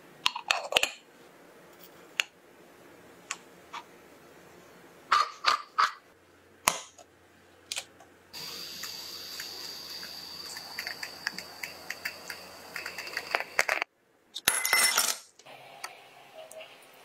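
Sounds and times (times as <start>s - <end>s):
moka pot hissing: 8.3s - 13.7s
coffee crackling pops: 8.8s - 13.9s.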